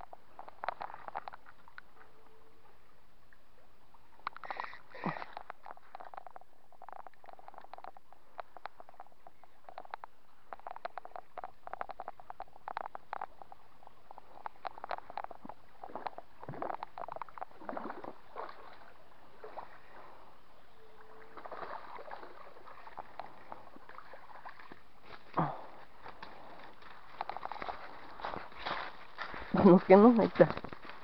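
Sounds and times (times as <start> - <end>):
fish splashing in water: 4.1 - 20.4, 21.0 - 29.2
footsteps on dry leaves and gravel: 25.0 - 31.0.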